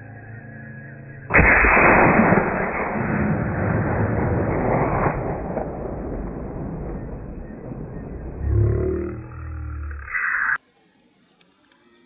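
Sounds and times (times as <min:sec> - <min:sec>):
rifle shot with echo: 0:01.3 - 0:08.2.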